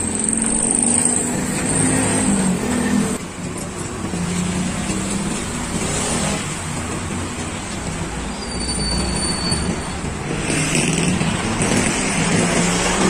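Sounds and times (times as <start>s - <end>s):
vehicles passing on road: 0.0s - 13.0s.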